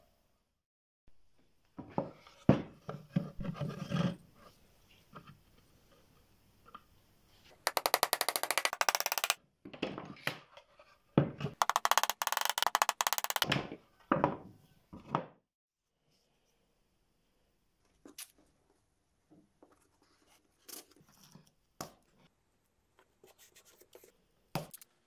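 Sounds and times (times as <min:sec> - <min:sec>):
hammer tapping nails into wood: 0:11.6 - 0:13.5.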